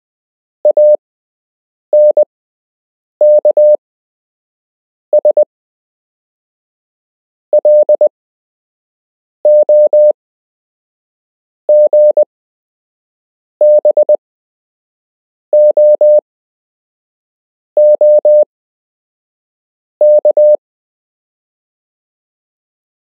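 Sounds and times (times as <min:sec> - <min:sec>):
morse code beeps: 0:00.7 - 0:01.0, 0:02.0 - 0:02.3, 0:03.2 - 0:03.8, 0:07.6 - 0:08.1, 0:09.5 - 0:10.1, 0:11.7 - 0:12.3, 0:13.6 - 0:14.2, 0:15.6 - 0:16.2, 0:17.8 - 0:18.4, 0:20.0 - 0:20.6.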